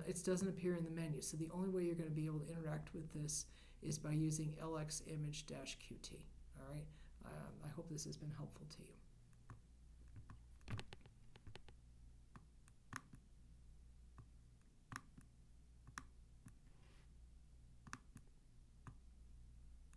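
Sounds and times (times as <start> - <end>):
low steady hum: 0.0 - 19.9
faint laptop clicks: 10.1 - 11.8.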